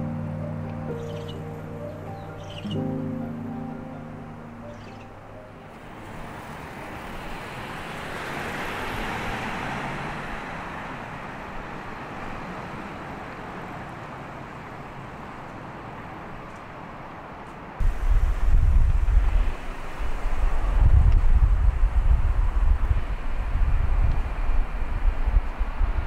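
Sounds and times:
vehicle passing: 0.0s - 14.6s
street traffic rush: 0.0s - 26.0s.

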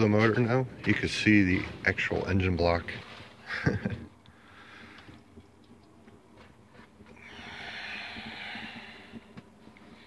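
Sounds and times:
breathing close to microphone: 4.3s - 5.2s, 7.1s - 10.0s.

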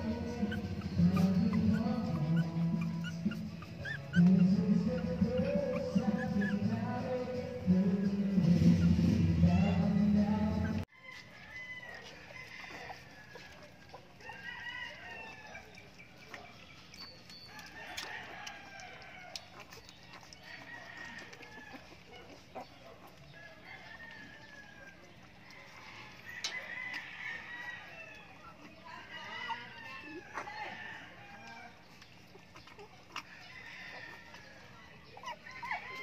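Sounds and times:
background music: 0.0s - 10.8s
chickens clucking: 0.0s - 36.0s
rooster crowing: 9.4s - 15.7s, 17.5s - 19.4s, 20.4s - 21.9s, 23.4s - 31.8s, 33.3s - 36.0s.

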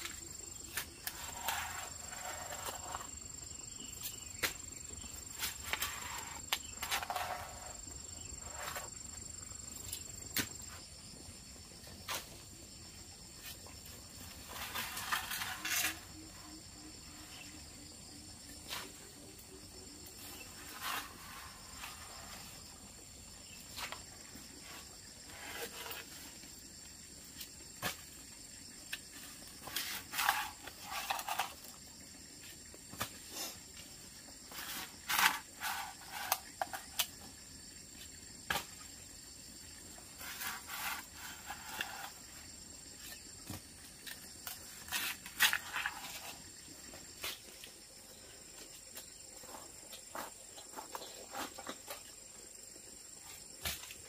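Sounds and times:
short knocks and scrapes: 0.0s - 3.3s, 4.0s - 9.2s, 13.4s - 16.2s, 20.2s - 22.7s, 23.6s - 26.5s, 28.9s - 31.8s, 34.5s - 37.2s, 40.0s - 42.4s, 48.9s - 52.2s
insect trilling: 13.8s - 26.8s.

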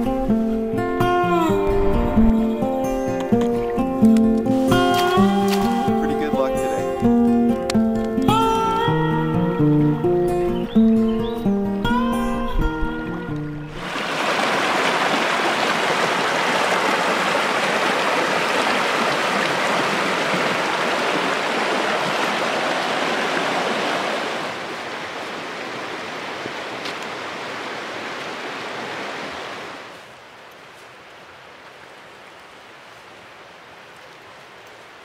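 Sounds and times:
river rapids rushing: 13.8s - 30.2s.

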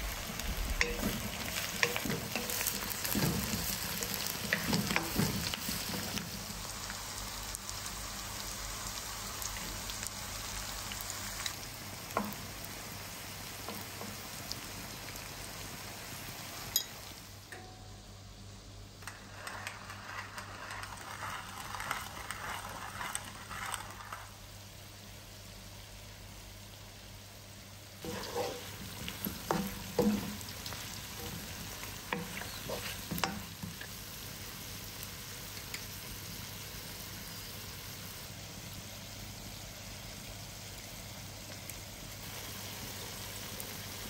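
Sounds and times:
wooden spatula scraping wok: 0.0s - 6.7s, 19.0s - 24.5s, 28.0s - 34.2s
vegetables sizzling in a wok: 0.0s - 44.0s
pepper mill grinding: 19.0s - 24.4s.

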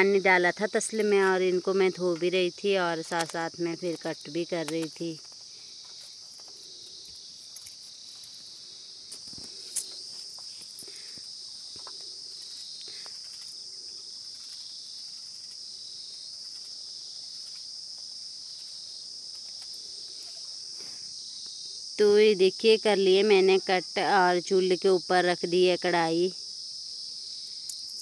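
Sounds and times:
night insects chorus: 0.0s - 28.0s.

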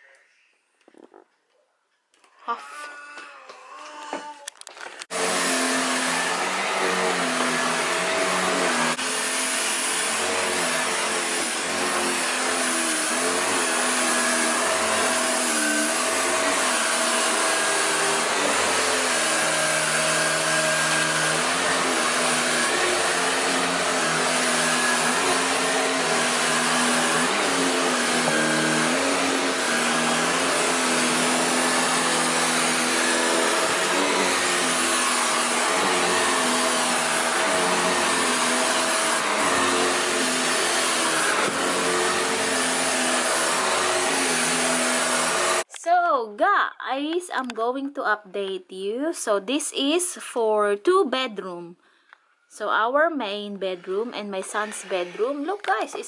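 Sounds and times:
vacuum cleaner on carpet: 5.1s - 45.7s, 53.9s - 56.0s.

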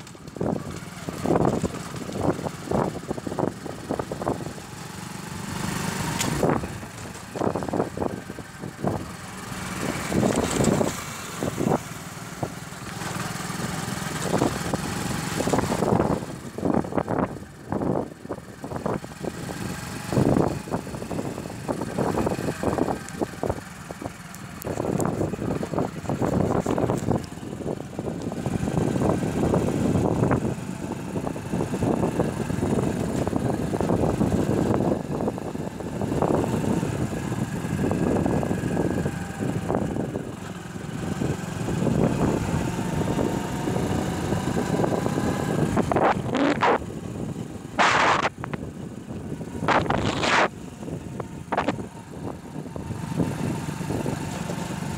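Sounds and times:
motorcycle engine running: 0.0s - 54.9s
wind buffeting microphone: 14.2s - 54.9s.

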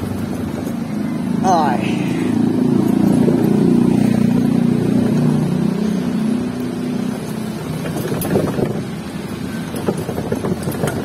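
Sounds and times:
motor scooter engine passing: 0.0s - 11.0s.

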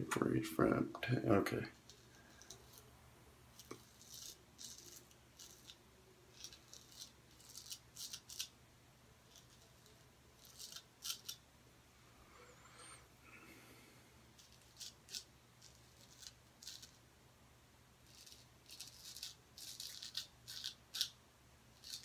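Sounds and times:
straight razor scraping stubble: 3.6s - 8.5s, 9.3s - 11.4s, 14.4s - 17.0s, 18.1s - 21.2s, 21.8s - 22.0s.

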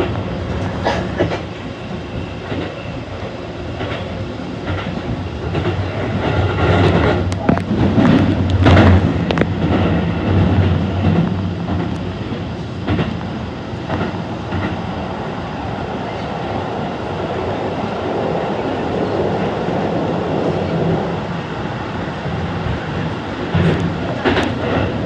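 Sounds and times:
electric train rumbling: 0.0s - 25.0s
sharp track clacks: 3.8s - 12.1s, 23.4s - 25.0s.

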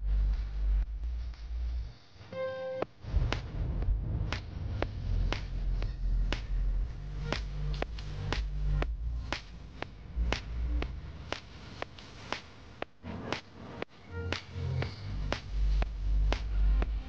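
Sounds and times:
music with deep bass: 0.0s - 2.2s, 3.0s - 17.0s
sharp clap on the beat: 4.3s - 4.6s, 5.3s - 5.7s, 6.3s - 6.6s, 7.3s - 8.6s, 9.3s - 10.7s, 11.3s - 13.5s, 14.3s - 14.5s.

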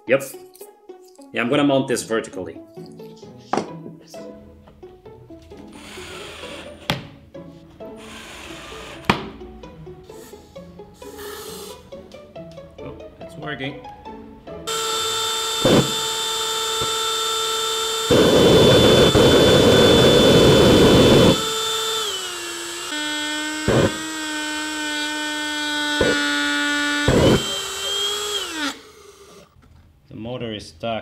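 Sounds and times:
electric fan motor whining: 14.7s - 29.5s
sharp pops: 23.7s - 24.1s.

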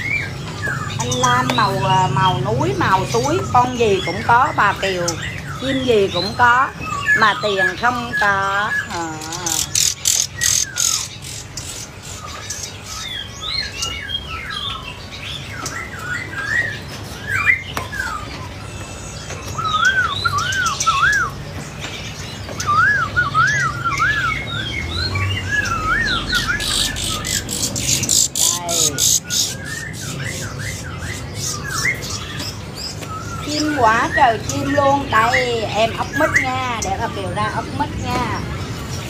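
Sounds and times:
songbirds chirping and twittering: 0.0s - 39.0s
rising and falling whistled notes: 22.6s - 26.7s.

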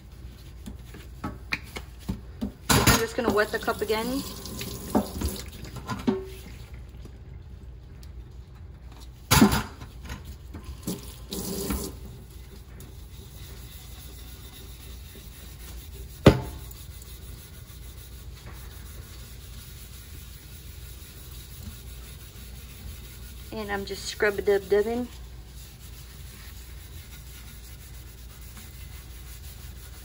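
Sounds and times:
tumbler being scrubbed: 0.0s - 2.4s, 9.9s - 30.0s
tap water running into sink: 2.9s - 6.6s, 10.6s - 12.1s.

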